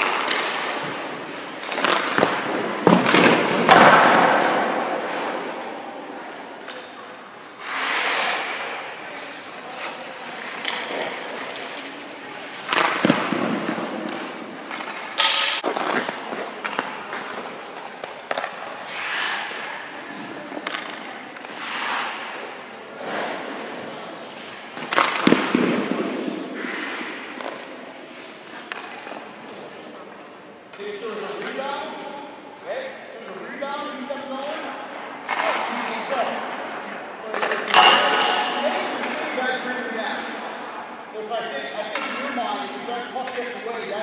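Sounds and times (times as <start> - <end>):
skates scraping on ice: 0.0 - 29.9
leg pads sliding on ice: 7.6 - 8.5, 18.7 - 19.6, 21.5 - 27.3.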